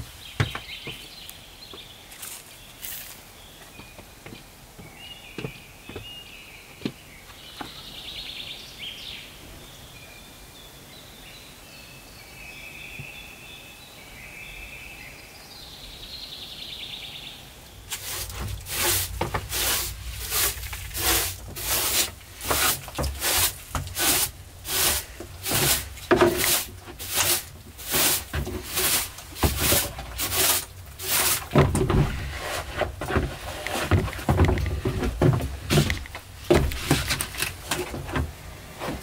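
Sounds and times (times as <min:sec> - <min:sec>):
birds singing: 0:00.0 - 0:18.5
broom sweeping wooden floor: 0:02.1 - 0:03.2, 0:17.9 - 0:39.0.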